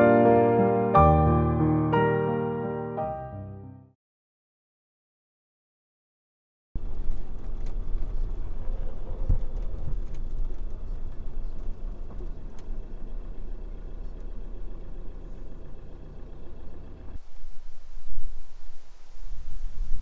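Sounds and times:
engine running: 6.8s - 20.0s.

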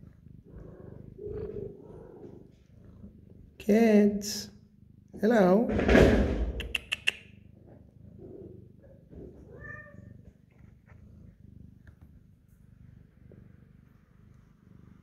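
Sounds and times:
cat purring: 0.0s - 15.0s
sharp clicks: 6.5s - 7.3s
kitten mewing: 9.5s - 10.1s.

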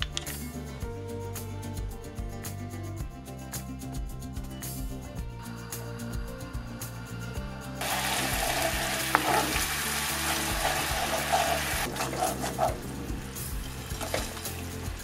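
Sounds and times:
sauce sizzling and bubbling in pan: 7.8s - 11.9s
wooden spatula scraping pan: 9.1s - 12.9s.

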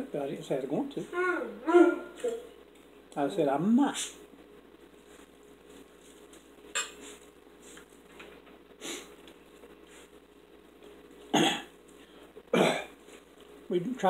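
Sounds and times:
forks clinking on plates: 6.7s - 7.0s.

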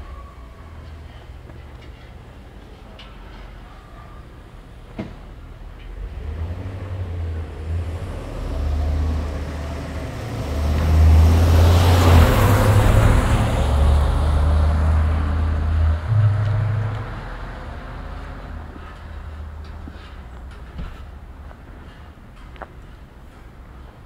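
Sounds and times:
vehicle engine drone: 5.9s - 20.6s.

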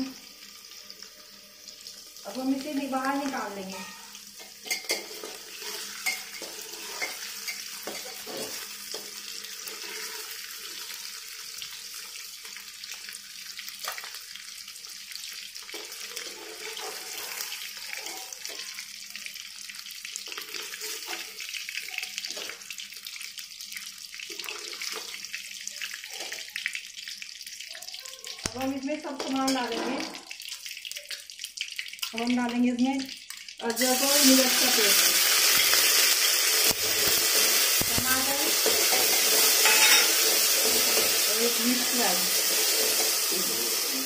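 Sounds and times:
food sizzling in hot oil: 0.0s - 44.0s
metal spatula clinking and scraping: 3.7s - 9.1s, 15.7s - 18.6s, 38.6s - 41.2s.

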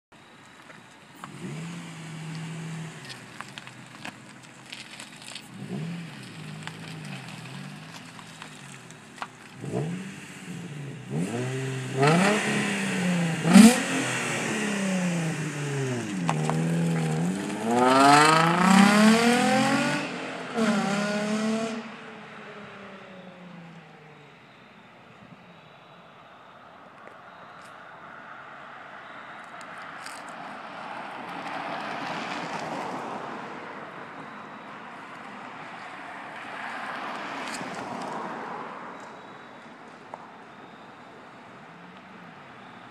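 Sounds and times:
exhaust crack: 2.3s - 19.8s
car accelerating hard: 9.6s - 22.0s.

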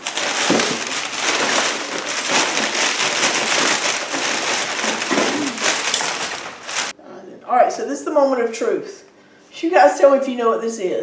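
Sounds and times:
packaging rustling and crinkling: 0.0s - 7.0s.

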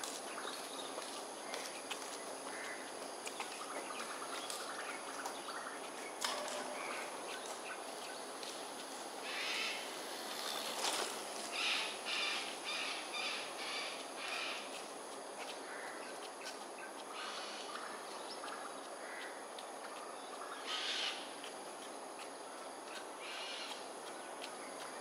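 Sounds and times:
crows and cockatoos calling: 2.4s - 3.0s, 9.2s - 9.9s, 11.5s - 14.8s, 15.6s - 16.2s, 17.0s - 21.3s, 23.2s - 23.8s.

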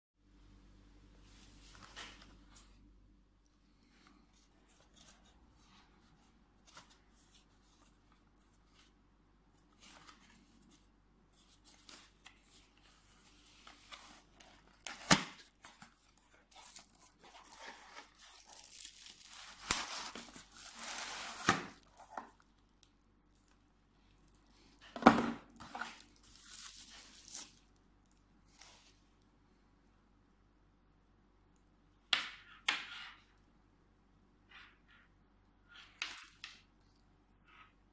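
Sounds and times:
bubble wrap crinkling: 9.8s - 23.6s, 25.6s - 28.9s
cardboard rustling and tearing: 13.8s - 22.3s.

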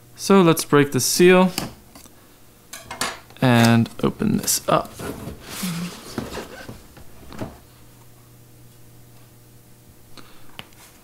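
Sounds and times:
cardboard box rustling and scraping: 4.8s - 7.5s.

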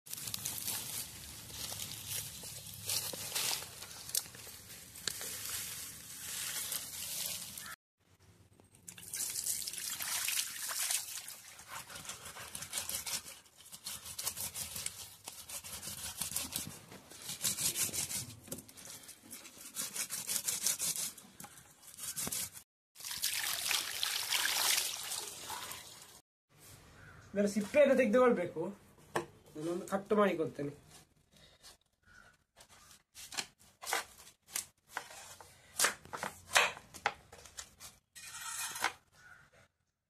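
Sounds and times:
water splashing over roots: 9.0s - 11.6s, 23.0s - 25.8s.

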